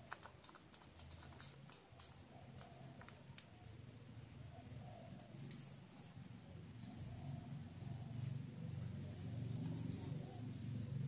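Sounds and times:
paper folding ticks: 0:00.0 - 0:03.5
low steady hum: 0:00.8 - 0:11.0.

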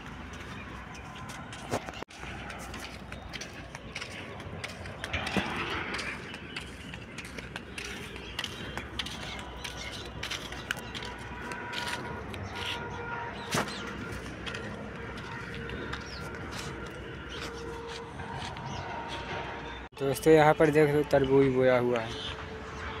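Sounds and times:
footsteps on gritty sand: 0:00.0 - 0:19.9.

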